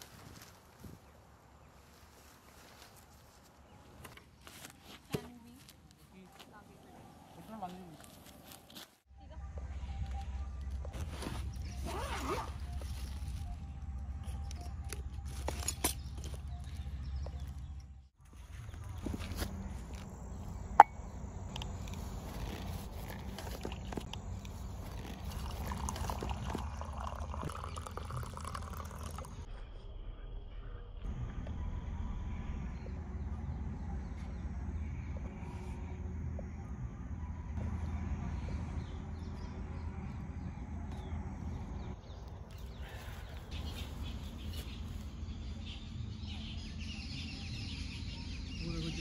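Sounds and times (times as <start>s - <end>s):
hot drink pouring into a mug: 25.2s - 29.4s
steady low rumble: 29.4s - 47.6s.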